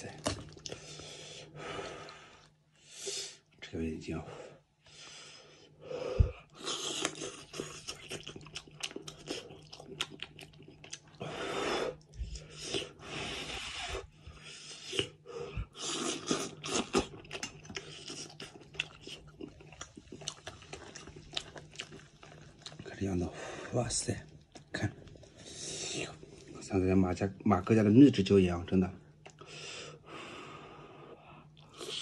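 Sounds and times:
person chewing and crunching: 0.1s - 1.0s, 6.6s - 11.2s, 14.8s - 23.2s.

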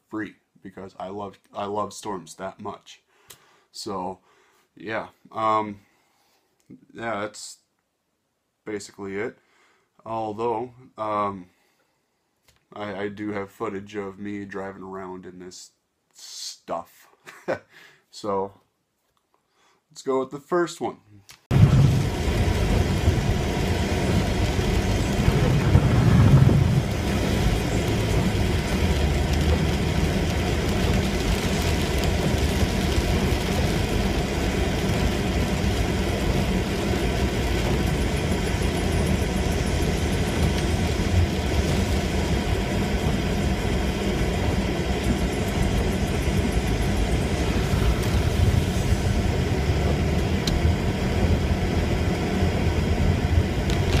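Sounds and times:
car road and engine rumble: 21.5s - 54.0s
rain on windshield: 21.5s - 54.0s.

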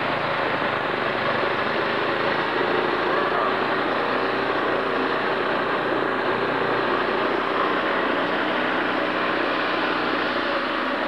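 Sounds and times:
small gasoline engine running: 0.0s - 11.0s.

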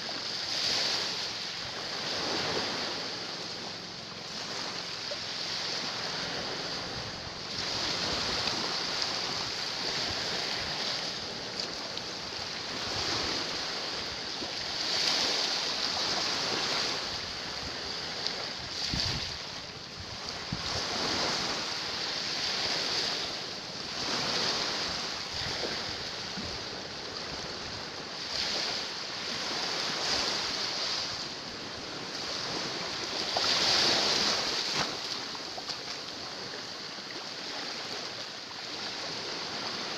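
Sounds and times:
small waves washing over rocks: 0.0s - 39.9s
wind on microphone: 5.4s - 35.4s.

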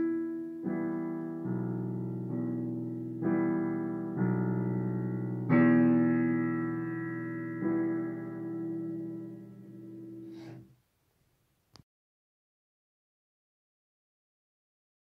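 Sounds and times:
piano chords ringing: 0.0s - 10.6s.

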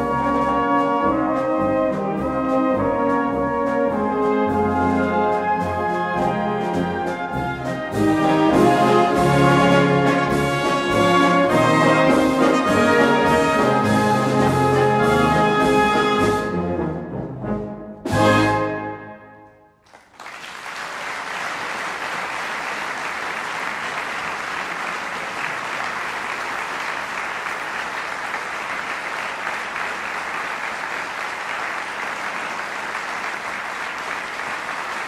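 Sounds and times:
audience applause: 19.8s - 35.0s.

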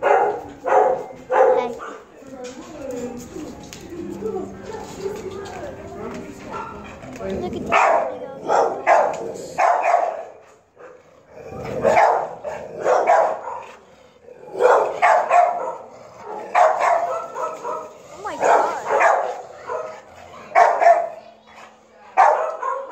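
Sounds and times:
dogs barking: 0.0s - 2.2s, 4.0s - 22.9s.

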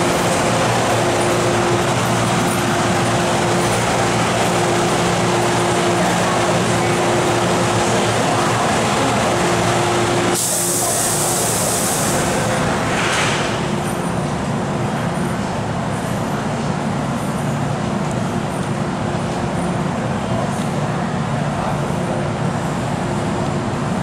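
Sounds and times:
train equipment humming: 0.0s - 24.0s
compressed air hissing: 10.2s - 12.6s.

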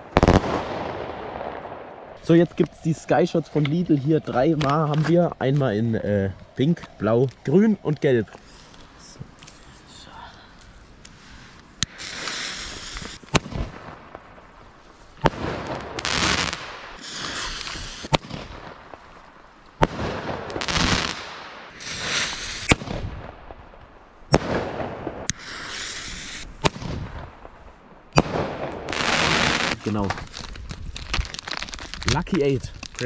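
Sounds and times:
firework bangs: 0.0s - 4.0s, 11.8s - 14.6s, 15.2s - 19.2s, 19.8s - 30.5s
firework hissing spray: 11.8s - 13.4s, 16.0s - 18.3s, 20.6s - 23.0s, 25.2s - 26.8s.

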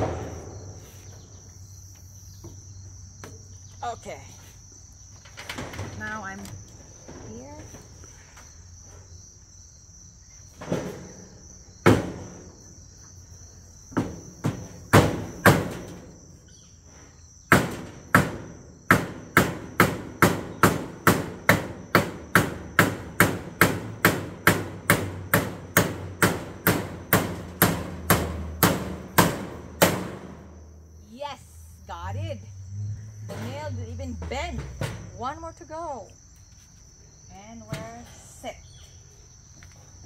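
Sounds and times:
high insect drone: 0.0s - 40.0s
hammer striking nails into wood: 14.0s - 15.8s, 17.5s - 30.4s.

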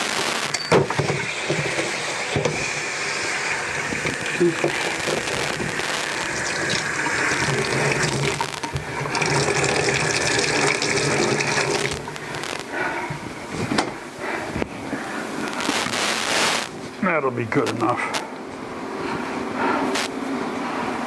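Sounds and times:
tap water running onto metal: 0.8s - 12.5s.

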